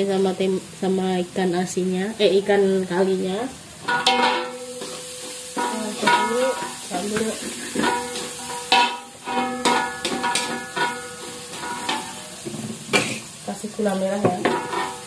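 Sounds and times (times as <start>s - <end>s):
light sizzle of frying: 0.0s - 15.0s
wok ringing: 2.9s - 15.0s
metal spatula clanking on wok: 3.8s - 13.3s, 14.1s - 15.0s.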